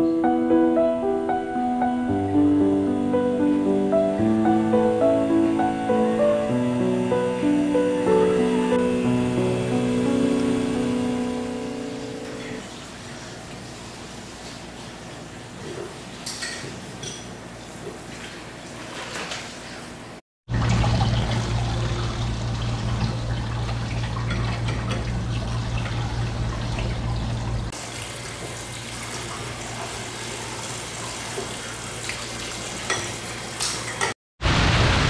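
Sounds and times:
tap water splashing on metal: 20.5s - 27.2s.

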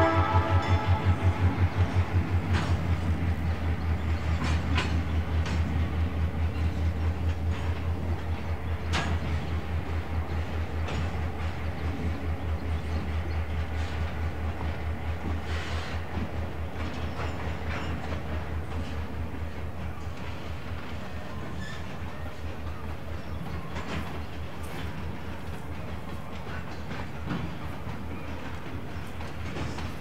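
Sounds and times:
locomotive diesel engine throbbing: 0.0s - 7.1s
train clanking over rails: 0.0s - 30.0s.

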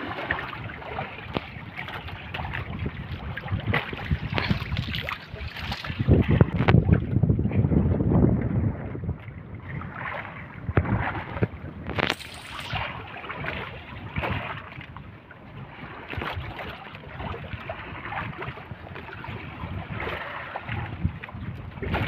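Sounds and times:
water sloshing against boat: 0.0s - 22.0s
wind on microphone: 0.0s - 22.0s
short hiss: 12.0s - 12.8s.

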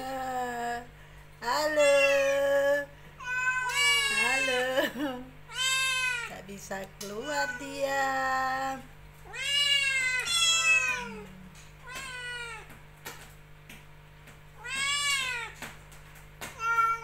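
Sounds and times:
kittens meowing: 3.2s - 4.8s, 5.5s - 6.3s, 9.3s - 12.8s, 14.6s - 15.7s, 16.5s - 17.0s.

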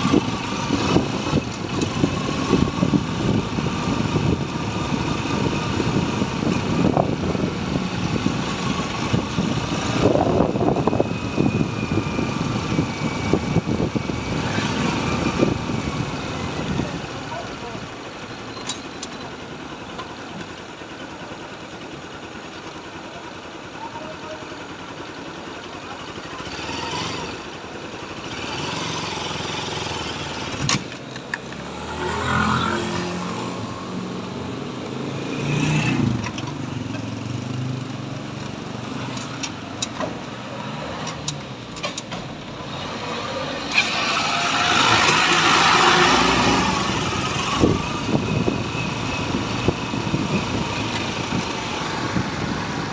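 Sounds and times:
vehicle engine and road noise: 0.0s - 52.9s
traffic passing: 26.4s - 52.9s.

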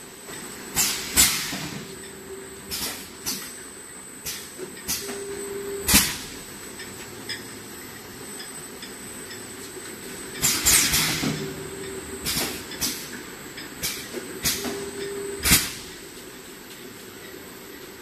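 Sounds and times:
steady hum: 0.0s - 18.0s
steady mechanical running: 0.6s - 18.0s
pneumatic hisses and clacks: 0.8s - 1.8s, 10.4s - 11.5s, 13.8s - 16.0s.

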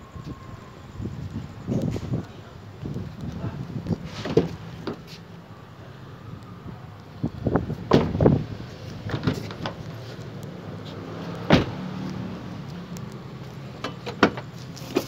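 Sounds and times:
car door shutting: 4.1s - 5.1s, 7.8s - 8.4s, 9.0s - 9.8s, 11.4s - 11.9s, 13.8s - 15.0s.

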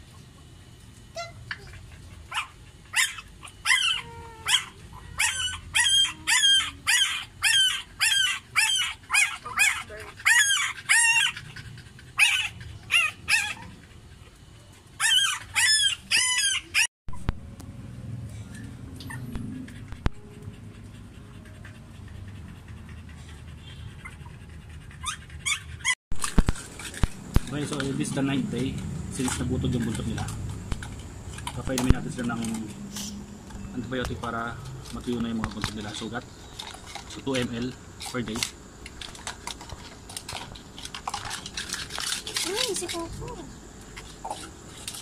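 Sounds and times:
puppies squealing and whining: 1.1s - 17.4s, 18.4s - 26.0s.

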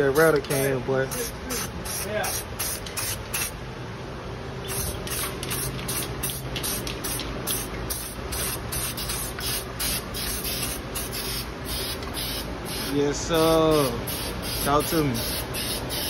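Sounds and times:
aerosol can spraying in pulses: 1.1s - 3.6s, 4.6s - 13.0s.

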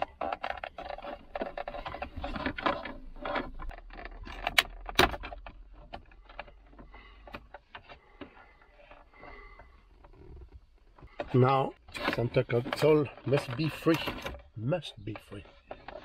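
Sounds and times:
plastic car trim clicking and rattling: 0.0s - 16.0s.

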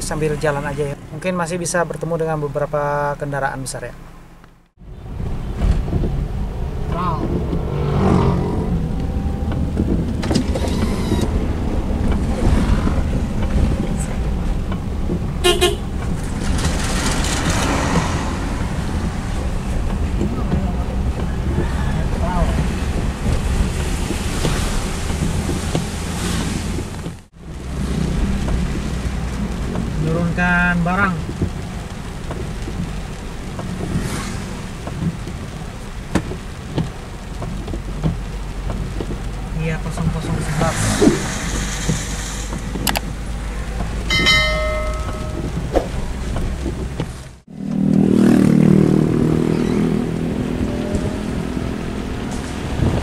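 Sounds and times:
car cabin road and engine noise: 0.0s - 53.0s
heavy rain: 4.8s - 53.0s
bus rushing past: 5.0s - 28.4s, 40.1s - 53.0s
bus horn blast: 15.4s - 15.9s.

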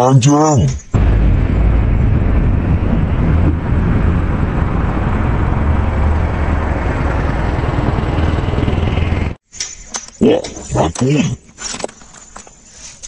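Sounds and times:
diesel truck engine running: 1.0s - 9.4s.

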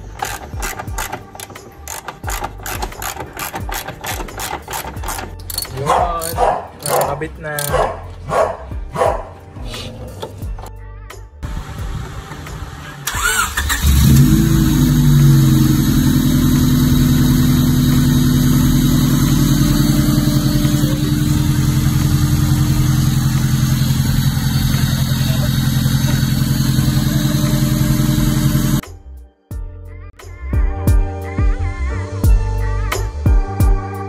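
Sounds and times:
starter cranking: 0.0s - 7.8s, 13.0s - 14.4s
car engine idling: 11.4s - 28.8s.

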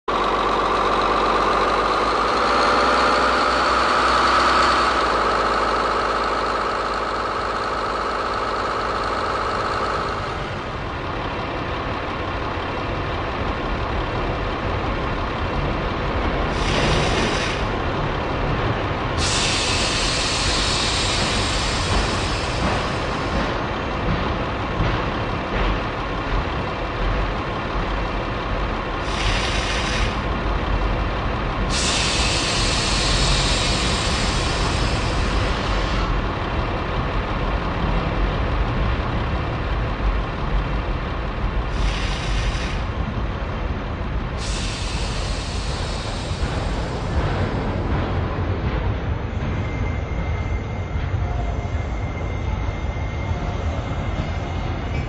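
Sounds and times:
diesel engine running: 0.0s - 50.6s
bursts of hissing air: 19.2s - 23.0s, 31.7s - 35.9s, 41.7s - 42.8s, 44.4s - 47.2s.

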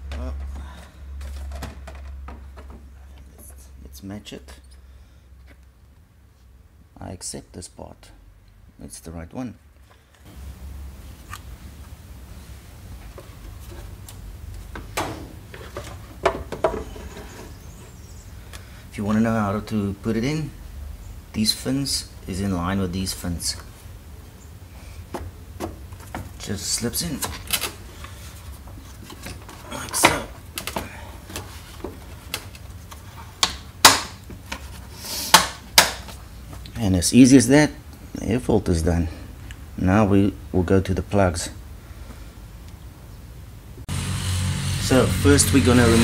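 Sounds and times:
air filter clicking and knocking: 14.7s - 17.1s.

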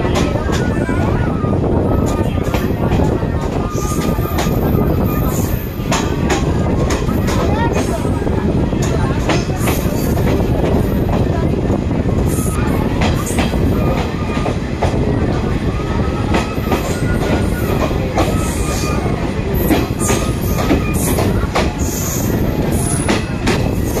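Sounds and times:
train rumbling on rails: 0.0s - 24.0s
high wheel squeals: 15.6s - 24.0s.

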